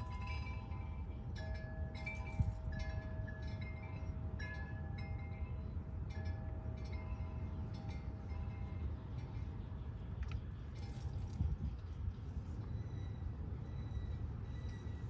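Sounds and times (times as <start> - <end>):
wind chimes ringing: 0.0 - 9.6.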